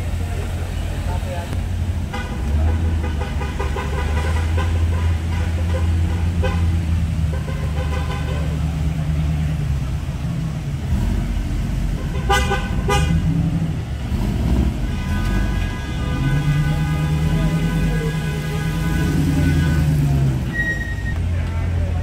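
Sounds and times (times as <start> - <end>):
faint voices: 0.0 - 1.7, 15.4 - 22.0
car engines rumbling: 0.0 - 22.0
car horn toots: 2.1 - 8.6, 12.0 - 13.3, 14.7 - 21.2.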